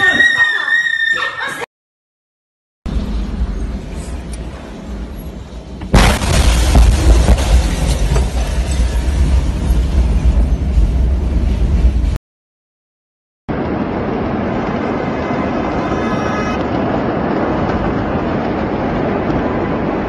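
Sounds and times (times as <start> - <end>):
explosion low rumble: 5.8 - 12.2
steady rushing noise: 13.5 - 20.0.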